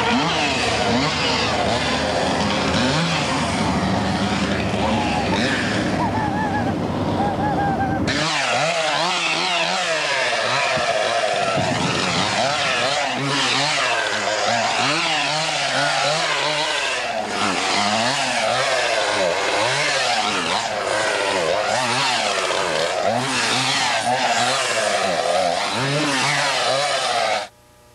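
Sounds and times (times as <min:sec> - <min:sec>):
chainsaw revving: 0:00.0 - 0:07.4, 0:08.0 - 0:27.5.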